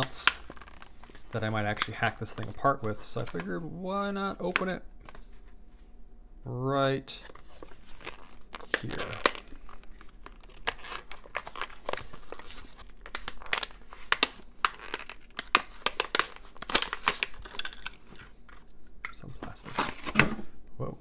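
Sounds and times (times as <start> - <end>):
blister pack tearing and crinkling: 0.0 - 3.5, 7.4 - 18.7.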